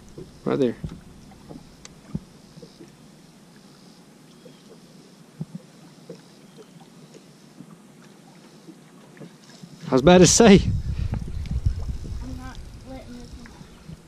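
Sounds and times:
small knocks on boat: 0.0 - 2.9, 5.4 - 6.2
water lapping against hull: 0.0 - 14.0.

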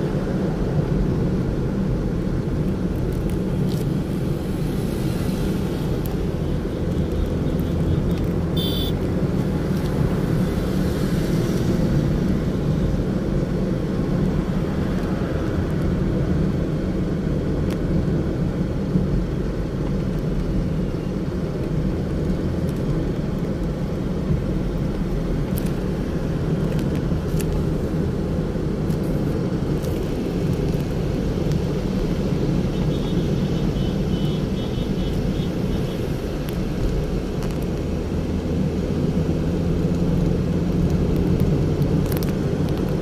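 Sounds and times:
car engine and tyre rumble: 0.0 - 43.0
faint high beeps: 8.6 - 9.0.

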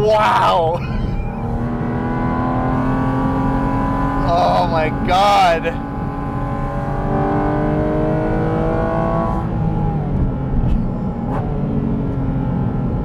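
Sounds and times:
road and tyre rumble: 0.0 - 13.0
car engine accelerating hard: 0.2 - 13.0.

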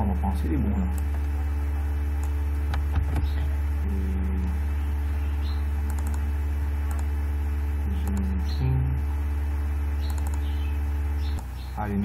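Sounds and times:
low electrical hum: 0.0 - 12.0
keyboard and mouse clicks: 5.9 - 6.2, 6.8 - 7.1, 10.0 - 10.5.

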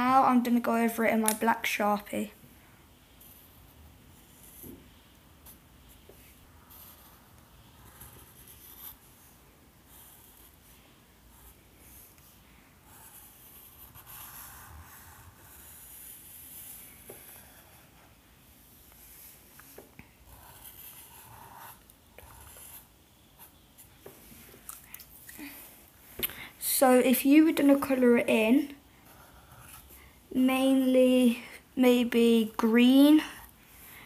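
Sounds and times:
marker scratching on paper: 6.2 - 9.1, 12.9 - 17.9, 19.7 - 23.5.

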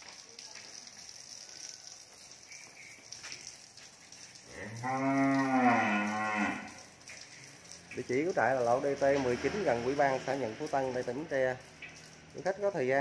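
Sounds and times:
urine splashing on concrete: 0.0 - 13.0
cow mooing: 4.5 - 6.8.

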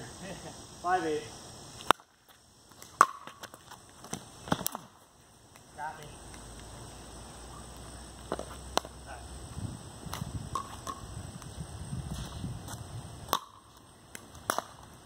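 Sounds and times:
paddles hitting plastic ball: 13.3 - 14.9.

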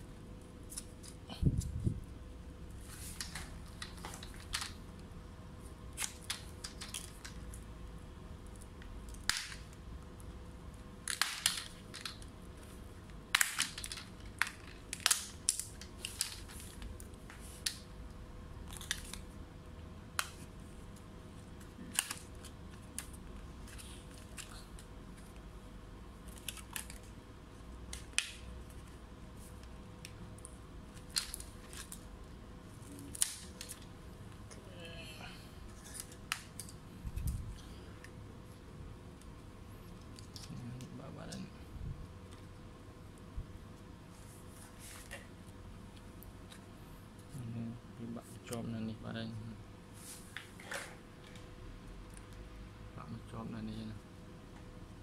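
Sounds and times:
plastic clips snapping: 11.1 - 12.2, 13.3 - 16.5.

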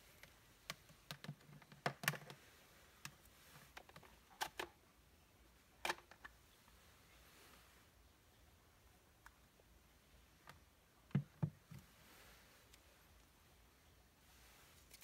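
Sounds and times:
plastic clicks and knocks: 0.2 - 2.4.

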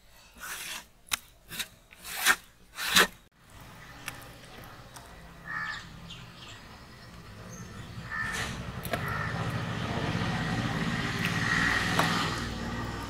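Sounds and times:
crow cawing: 5.4 - 5.9, 8.0 - 9.4.

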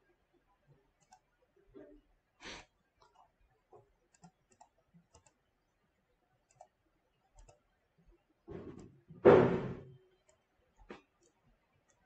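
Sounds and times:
computer mouse clicks: 1.0 - 1.3, 3.0 - 5.5, 6.4 - 6.8, 7.4 - 7.6.

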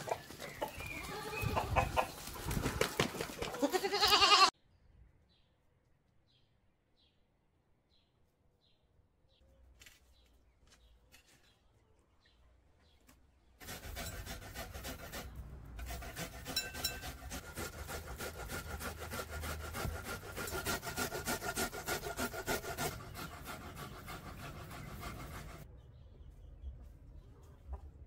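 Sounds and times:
vegetable rasping on grater: 13.6 - 25.6.

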